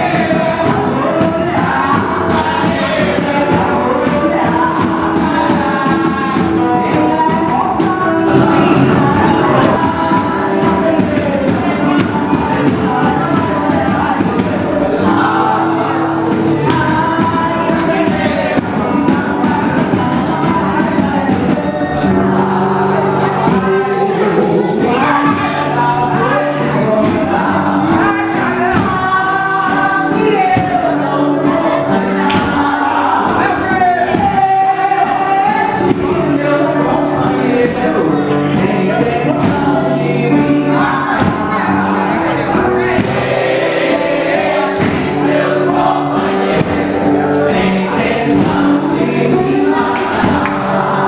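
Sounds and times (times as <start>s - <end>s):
group singing folk song: 0.0s - 51.0s
percussion: 0.0s - 51.0s
hand drum beats: 8.3s - 10.1s.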